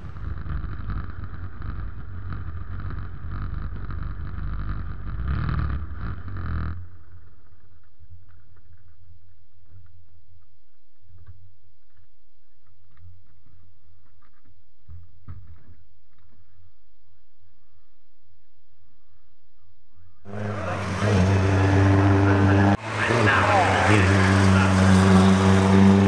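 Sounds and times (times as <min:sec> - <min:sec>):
low engine rumble: 0:00.0 - 0:19.2.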